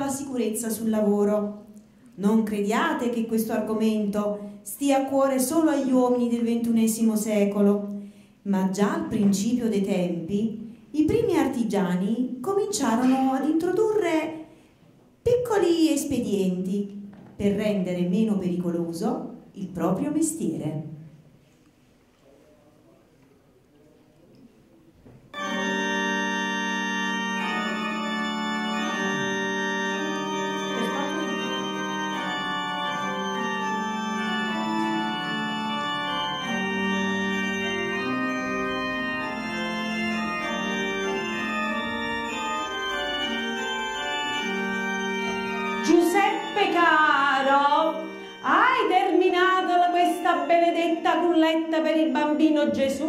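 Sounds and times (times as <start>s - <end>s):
organ music in held chords: 25.3s - 51.8s
person speaking: 30.5s - 35.3s, 45.8s - 52.2s.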